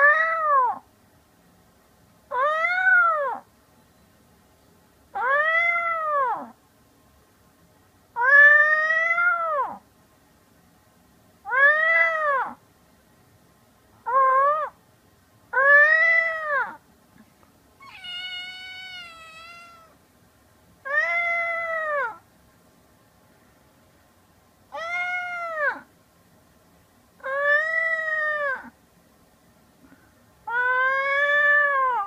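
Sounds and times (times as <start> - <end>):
kitten meowing: 5.2 - 6.5, 8.2 - 9.8, 14.1 - 14.8, 17.8 - 20.0, 20.8 - 22.2, 24.7 - 25.9, 30.5 - 32.0.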